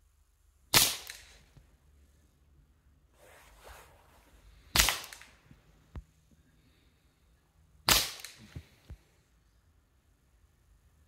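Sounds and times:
rifle shots: 0.7s - 1.4s, 4.7s - 5.3s, 7.9s - 8.4s.

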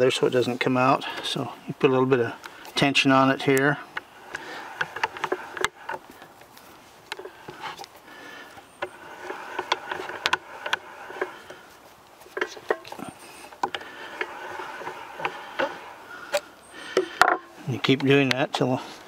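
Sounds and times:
chain rivet spinner clicking and scraping: 2.9s - 6.5s, 7.1s - 18.2s.

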